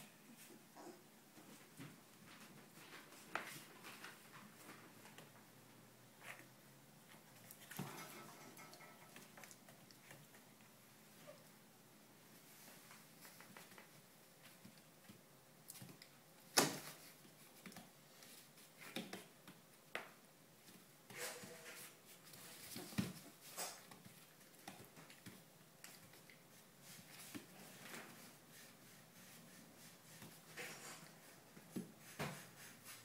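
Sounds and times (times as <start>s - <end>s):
puppies scuffling: 20.6s - 33.0s.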